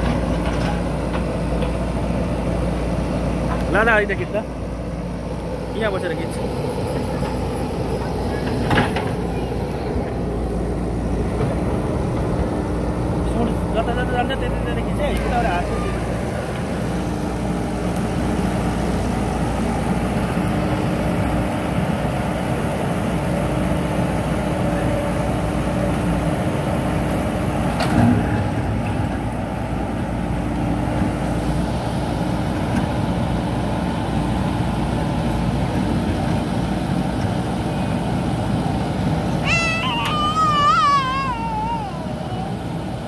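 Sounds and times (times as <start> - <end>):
backhoe working through rubble: 0.0 - 4.2
diesel engine under load: 0.0 - 43.0.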